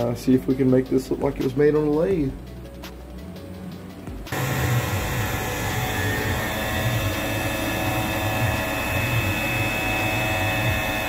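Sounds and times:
high spindle whine: 0:04.3 - 0:11.0
rough churning cutting noise: 0:04.3 - 0:11.0.

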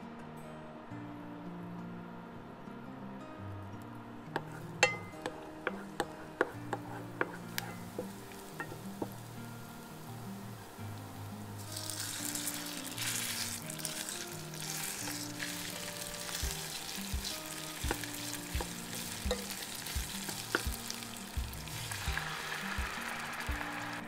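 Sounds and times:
meat sizzling in hot oil: 0:04.8 - 0:24.0
sauce poured into pan: 0:11.6 - 0:24.0.

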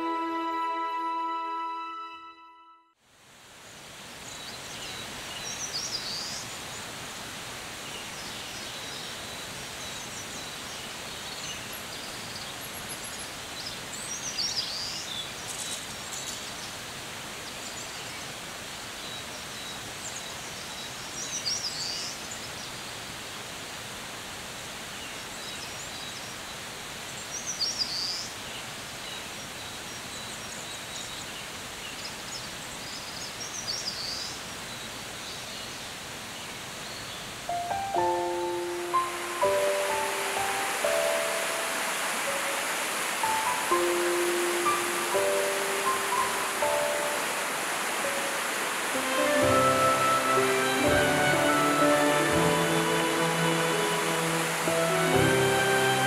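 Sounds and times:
stream rushing: 0:03.1 - 0:56.0
faint high bird notes: 0:37.5 - 0:42.6.

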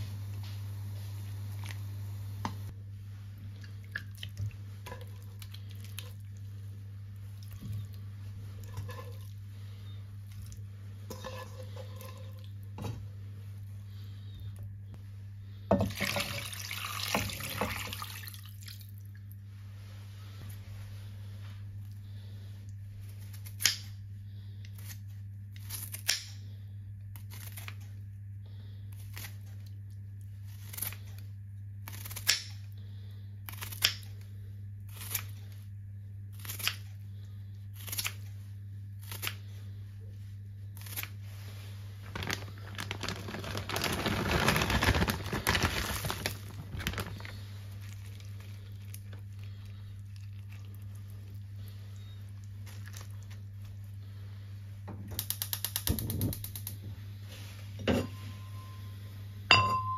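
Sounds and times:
scissors snipping ginger: 0:25.6 - 0:26.4, 0:31.8 - 0:32.6, 0:33.5 - 0:34.1, 0:36.4 - 0:36.9
rustling of food being handled: 0:40.8 - 0:54.2.

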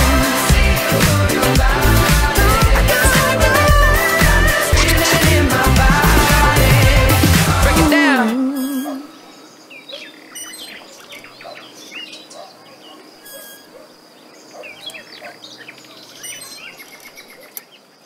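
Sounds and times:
background music: 0:00.0 - 0:08.4
birds chirping and singing: 0:00.2 - 0:17.9
faint steady high tone: 0:07.9 - 0:09.4.

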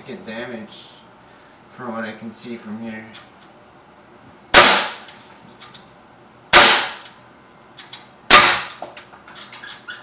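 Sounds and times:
air pistol shots: 0:04.5 - 0:05.2, 0:06.5 - 0:07.1, 0:08.3 - 0:08.8.

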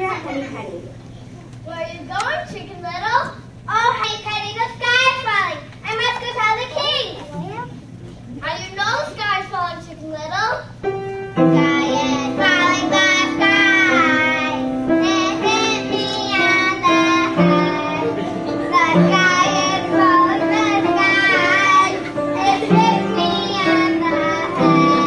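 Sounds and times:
piano chords: 0:10.8 - 0:25.0
child singing: 0:11.4 - 0:25.0.

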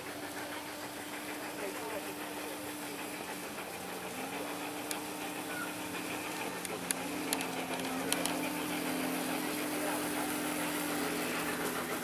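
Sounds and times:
model train hum: 0:00.0 - 0:12.0
faint background voices: 0:00.1 - 0:11.9
sharp clicks: 0:06.5 - 0:08.5.

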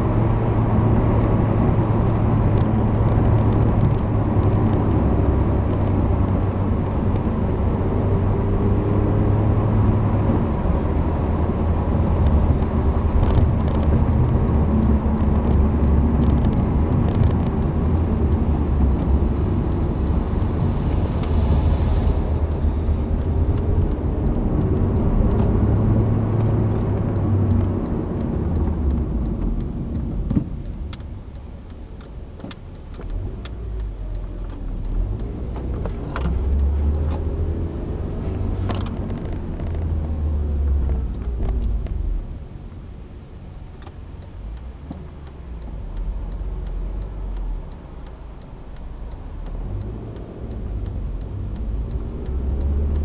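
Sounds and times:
car engine and road rumble: 0:00.0 - 0:53.0
faint clicks: 0:12.2 - 0:42.2, 0:43.8 - 0:53.0.

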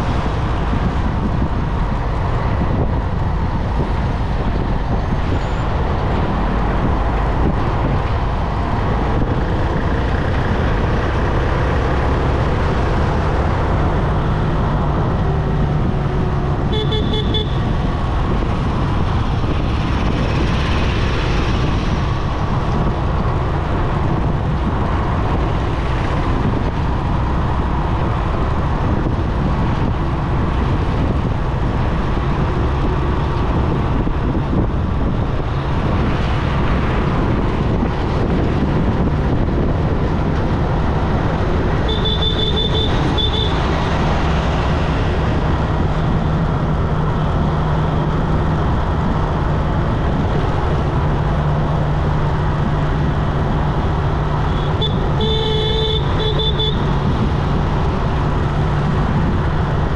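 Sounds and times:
motorcycle engine hum: 0:00.0 - 0:59.9
passing traffic: 0:00.0 - 0:59.9
wind and road noise: 0:00.0 - 0:59.9
vehicle horn honking: 0:16.7 - 0:17.6, 0:41.9 - 0:43.6, 0:54.5 - 0:56.9.

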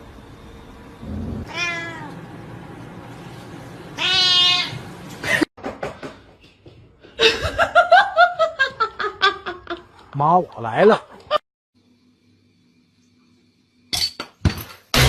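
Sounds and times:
cat meowing: 0:01.1 - 0:02.2, 0:04.0 - 0:04.8
person laughing: 0:07.2 - 0:09.9.

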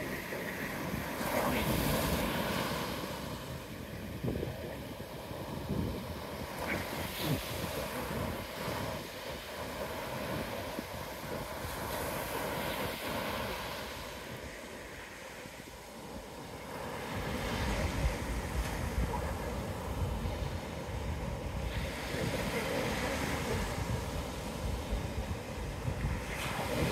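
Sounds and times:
surf washing onto beach: 0:00.0 - 0:26.9
wind buffeting microphone: 0:00.0 - 0:26.9.

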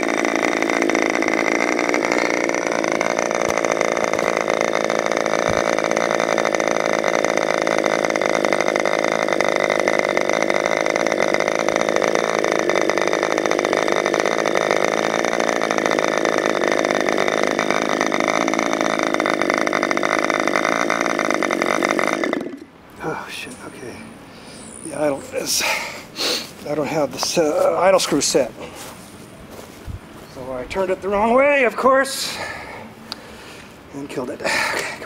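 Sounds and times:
model airplane engine running: 0:00.0 - 0:22.7, 0:23.4 - 0:25.6.

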